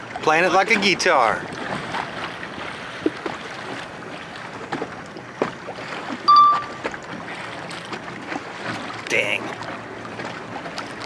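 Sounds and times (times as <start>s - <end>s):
water noise: 0.0s - 11.0s
wind: 0.0s - 11.0s
brief high-pitched tone: 6.3s - 6.9s.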